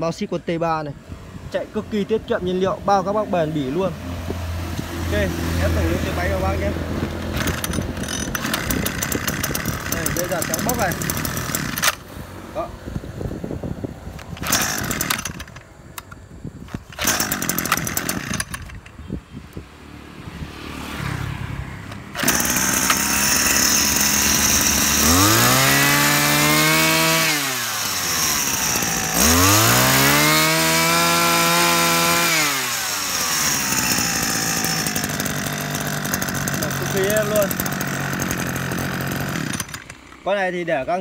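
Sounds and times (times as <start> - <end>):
brush cutter engine revving: 1.6 - 12.7, 14.2 - 19.0, 20.2 - 41.0
brush cutter engine idling: 5.1 - 12.1, 14.2 - 19.1, 21.8 - 41.0
pull-start bursts: 6.1 - 12.1, 14.2 - 19.0, 21.8 - 40.5.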